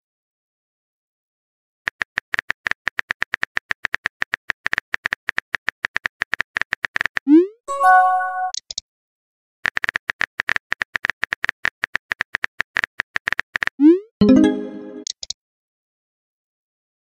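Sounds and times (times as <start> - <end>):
message sent chime: 7.7 - 8.6, 14.2 - 15.1
keyboard typing clicks: 9.7 - 15.4.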